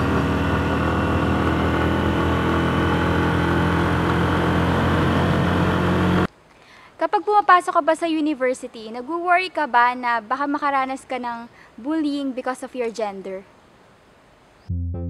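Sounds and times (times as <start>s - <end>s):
road noise rushing: 0.0s - 6.3s
vehicle engine hum: 0.0s - 6.3s.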